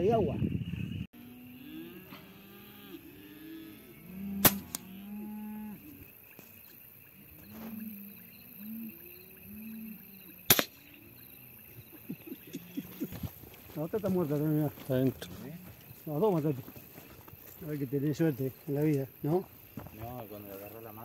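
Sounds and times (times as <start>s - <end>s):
low animal calls: 1.2s - 6.1s, 7.1s - 13.6s
air rifle shots: 4.4s - 4.8s, 10.5s - 10.8s.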